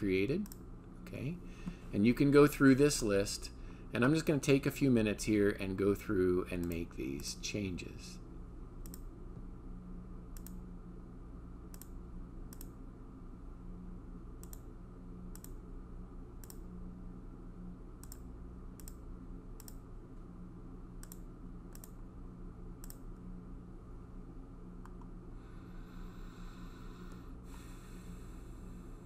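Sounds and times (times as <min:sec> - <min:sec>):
steady low hum: 0:00.0 - 0:29.0
computer mouse clicking: 0:06.6 - 0:06.8, 0:08.8 - 0:09.1, 0:10.4 - 0:10.6, 0:11.7 - 0:12.8, 0:14.4 - 0:14.7, 0:15.3 - 0:15.6, 0:16.4 - 0:16.6, 0:18.0 - 0:19.0, 0:19.6 - 0:19.8, 0:21.0 - 0:22.0, 0:22.8 - 0:23.1.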